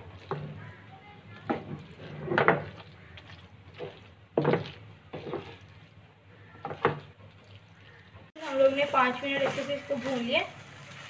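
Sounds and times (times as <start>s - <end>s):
spatula scraping frying pan: 3.8s - 5.7s.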